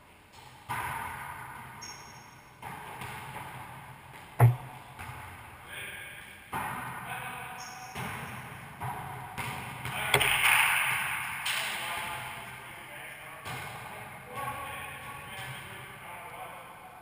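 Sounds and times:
ball smacks echoing in court: 0:00.4 - 0:05.4, 0:06.5 - 0:07.0, 0:07.9 - 0:11.8
ball bouncing on floor: 0:04.2 - 0:05.2, 0:08.8 - 0:10.6.

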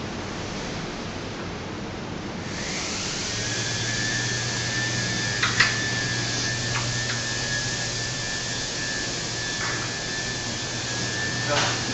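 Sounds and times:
door rollers running hum: 0:02.5 - 0:11.9.

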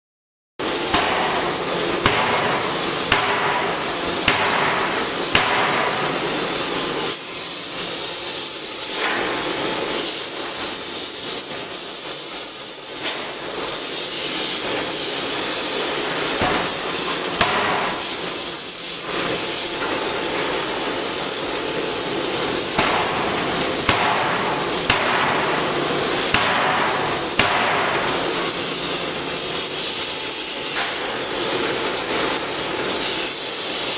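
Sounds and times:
forging hammer blows: 0:00.6 - 0:06.9, 0:21.4 - 0:31.3
loud continuous hiss: 0:00.6 - 0:33.9.

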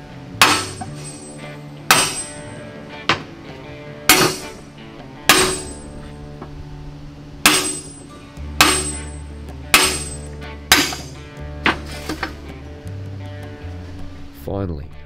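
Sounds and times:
background music: 0:00.0 - 0:15.0
hammer striking steel: 0:00.4 - 0:03.3, 0:04.1 - 0:04.6, 0:05.3 - 0:06.0, 0:07.4 - 0:12.4.

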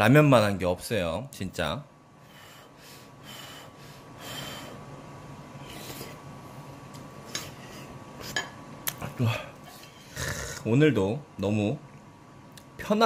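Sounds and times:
person slurping noodles: 0:10.1 - 0:10.6.

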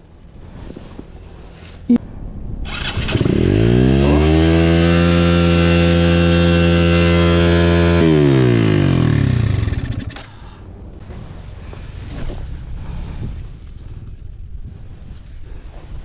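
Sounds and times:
motorcycle engine revving: 0:02.7 - 0:10.3.

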